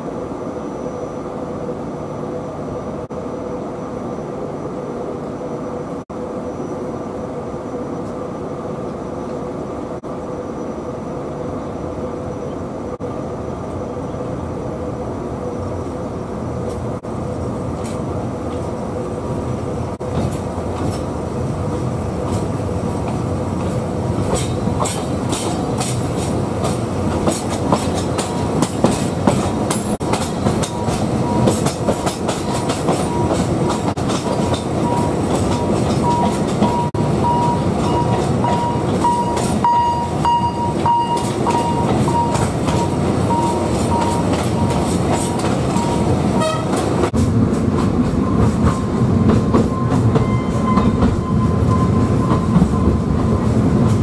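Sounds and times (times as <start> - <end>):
train wheels rumbling on rail: 0.0 - 54.0
rail clicks: 16.6 - 54.0.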